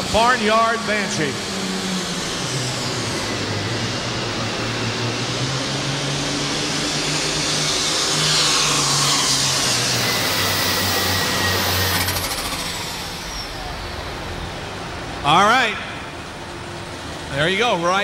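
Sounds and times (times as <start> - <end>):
tractor diesel engine running: 10.2 - 18.0.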